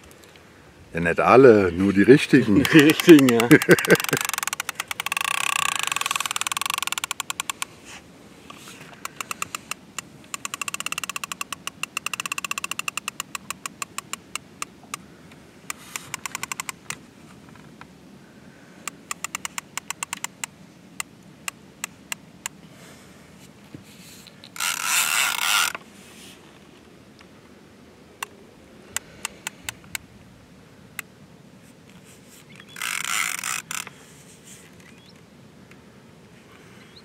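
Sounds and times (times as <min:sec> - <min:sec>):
fishing reel clicking: 0:02.6 - 0:07.7, 0:08.5 - 0:14.7, 0:15.7 - 0:17.0, 0:18.9 - 0:20.5, 0:24.5 - 0:25.8, 0:32.7 - 0:33.9.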